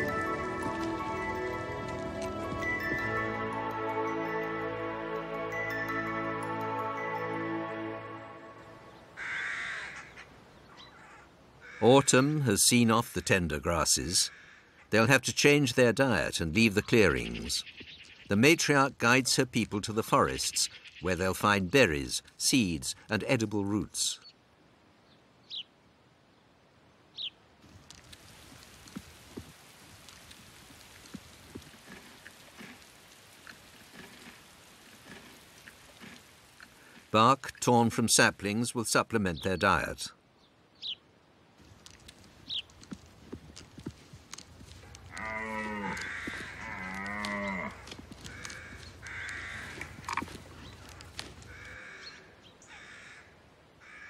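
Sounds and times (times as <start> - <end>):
louder raindrops: 0.0 - 3.8, 27.6 - 37.7
rain pattering: 0.0 - 5.3, 27.6 - 38.4, 41.6 - 51.9
harsh bird caws: 9.2 - 12.3, 14.3 - 14.9, 45.1 - 54.0
bison mooing calls: 45.0 - 50.4.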